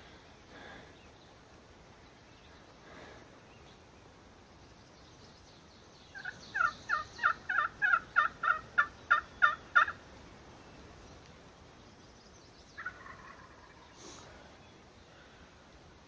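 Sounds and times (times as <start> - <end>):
turkey call yelping: 6.2 - 10.0, 12.8 - 13.9.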